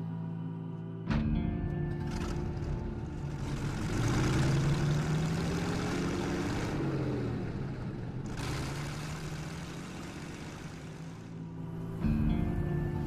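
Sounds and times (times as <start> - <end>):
car engine driving away: 1.8 - 11.7.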